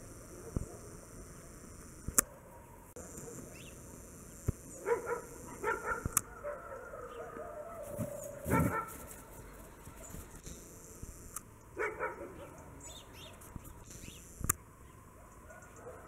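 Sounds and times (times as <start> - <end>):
sharp clicks: 0.1 - 2.3, 2.9 - 4.8, 5.5 - 6.3, 10.1 - 11.5, 13.2 - 14.6
dog barking: 4.8 - 9.3, 11.8 - 12.7, 15.2 - 16.0.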